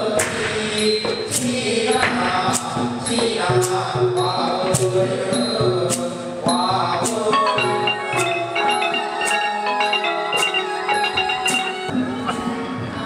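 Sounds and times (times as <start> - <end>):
xylophone mallet runs: 1.9 - 12.6
gong circle melody: 6.7 - 12.0.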